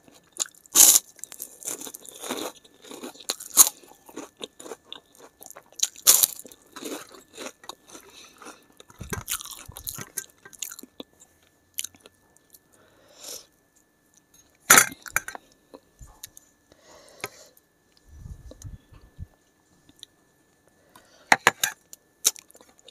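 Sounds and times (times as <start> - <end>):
crunchy chewing: 0.0 - 12.8
loud crunch of biting: 0.4 - 11.0.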